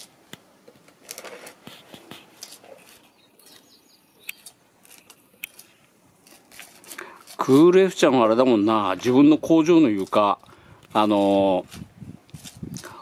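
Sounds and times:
plastic spatula scraping mortar: 8.8 - 13.0.

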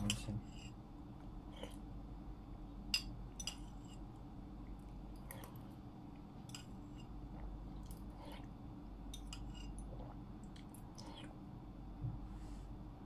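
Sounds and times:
quiet eating sounds: 0.0 - 13.0
steady low hum: 0.0 - 13.0
metal spoon clinking ceramic bowl: 2.9 - 3.7.

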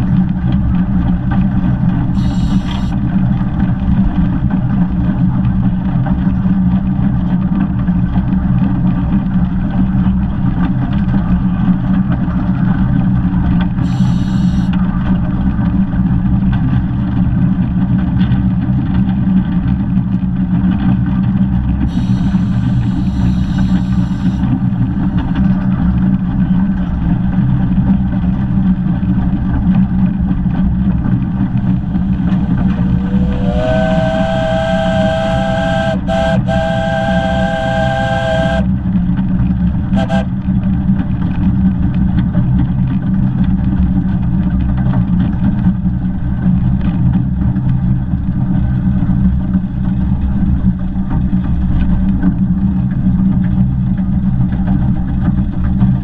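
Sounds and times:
steam locomotive rumbling: 0.0 - 5.8, 13.6 - 15.0, 21.8 - 27.4, 28.3 - 41.2
steam chime whistle: 2.2 - 2.9, 13.9 - 14.7, 21.9 - 25.1, 31.8 - 38.6, 40.0 - 40.2.

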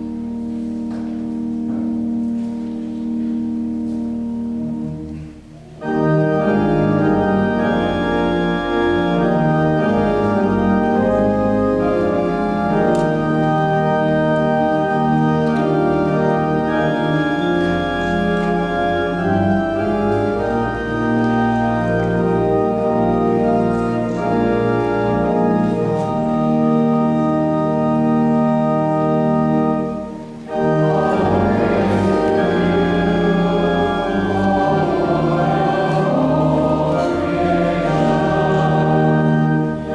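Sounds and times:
church organ chords: 0.0 - 39.9
choir singing: 30.4 - 39.9.

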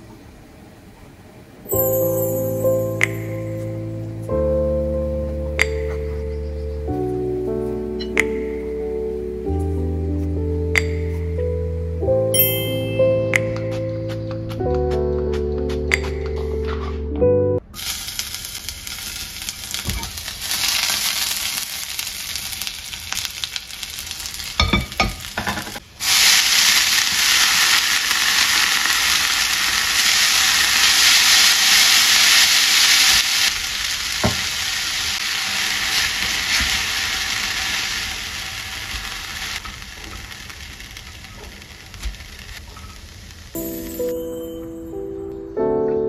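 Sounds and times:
onion sizzling in oil: 17.7 - 44.1
noodles stir-frying sizzle: 17.7 - 44.2.

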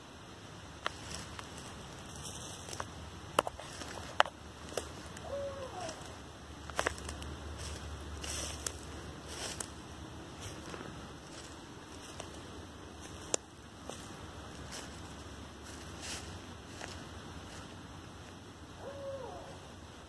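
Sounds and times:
footsteps on dry leaves: 0.8 - 18.4
twigs snapping: 2.2 - 6.0, 6.6 - 9.8, 13.0 - 17.0
faint owl hoot: 5.0 - 6.3, 18.7 - 20.0.

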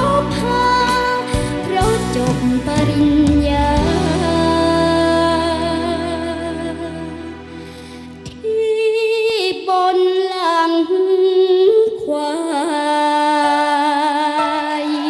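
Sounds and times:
girl singing into microphone: 0.0 - 7.2, 8.2 - 15.0
backing music: 0.0 - 9.7.

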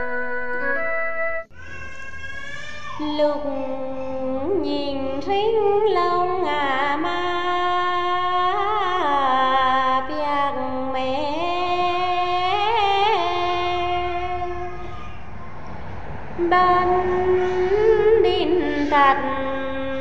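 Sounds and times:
person singing long notes: 16.4 - 20.0.

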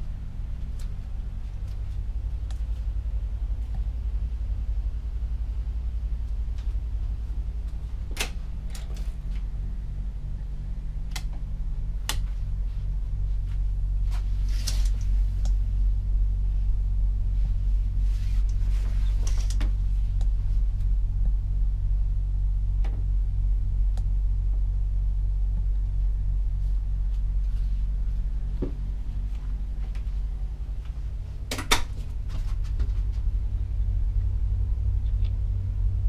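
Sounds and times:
machinery and ventilation hum: 0.0 - 36.0.

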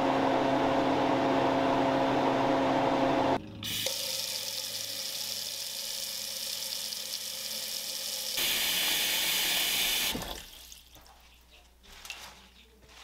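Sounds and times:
freeze dryer humming: 0.0 - 10.6
tap water splashing into steel sink: 10.0 - 11.1.

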